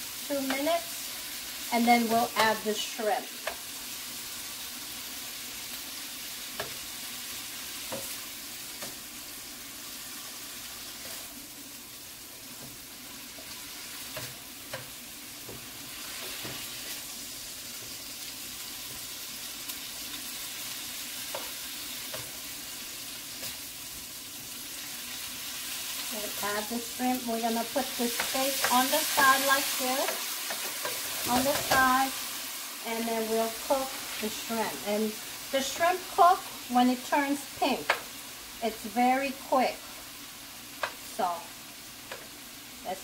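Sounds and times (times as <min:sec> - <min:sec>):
steak sizzling in a frying pan: 0:00.0 - 0:43.0
spatula clicking and scraping pan: 0:03.4 - 0:03.7, 0:06.4 - 0:07.0, 0:07.7 - 0:09.1, 0:10.9 - 0:11.3, 0:12.5 - 0:17.1, 0:17.7 - 0:23.7, 0:27.7 - 0:32.0, 0:37.8 - 0:38.1, 0:40.8 - 0:41.1, 0:42.0 - 0:42.4.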